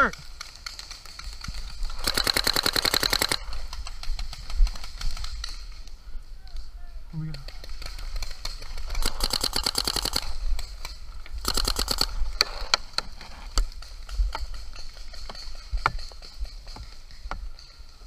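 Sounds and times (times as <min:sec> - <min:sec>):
paintball marker rapid firing: 0:00.5 - 0:05.5, 0:07.6 - 0:10.6, 0:11.4 - 0:12.6.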